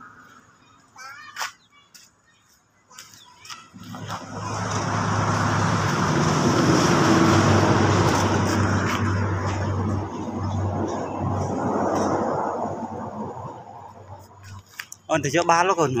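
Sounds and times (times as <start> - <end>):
vehicle engine running: 3.7 - 14.6.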